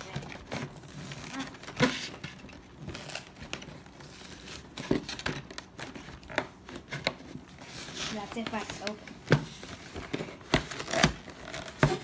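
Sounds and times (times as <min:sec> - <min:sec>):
cardboard box scraping and rustling: 0:06.9 - 0:08.9.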